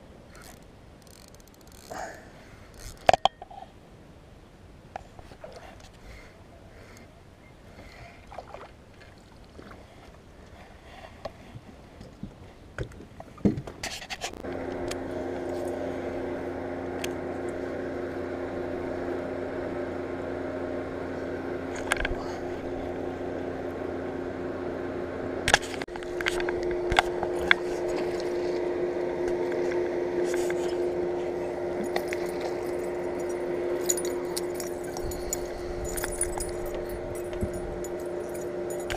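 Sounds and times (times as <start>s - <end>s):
fishing tackle clicks and rattles: 0.3s - 2.1s, 2.7s - 3.5s, 31.9s - 38.9s
electric motor humming: 14.4s - 38.9s.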